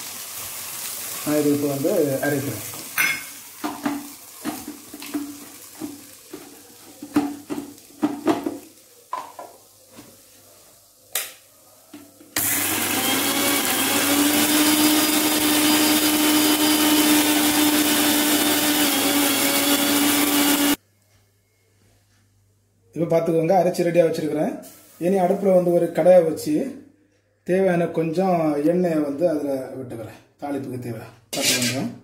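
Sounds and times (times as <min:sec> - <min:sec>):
electric mixer grinder running: 0:12.4 - 0:20.8.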